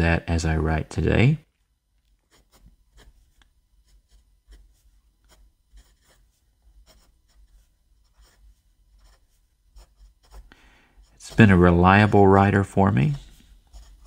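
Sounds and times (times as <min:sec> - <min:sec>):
fountain pen writing on paper: 0:05.3 - 0:06.2, 0:06.8 - 0:10.5, 0:13.7 - 0:14.0.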